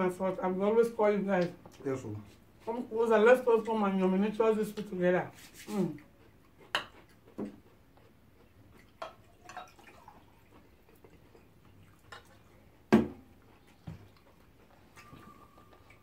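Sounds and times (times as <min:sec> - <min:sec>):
cutlery clicking on dishes: 0:06.7 - 0:07.5
water pouring into a glass: 0:09.0 - 0:10.5.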